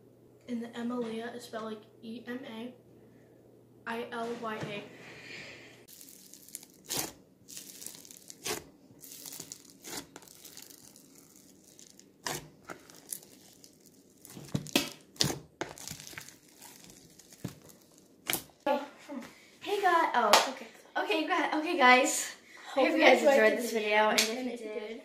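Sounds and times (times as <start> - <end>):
foam-bead slime popping and crackling: 5.9 - 18.6.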